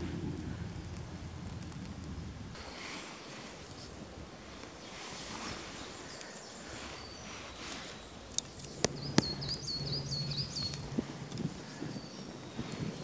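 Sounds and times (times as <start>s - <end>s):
fire snapping: 0.0s - 5.1s, 7.4s - 9.6s
wood fire burning: 0.0s - 13.0s.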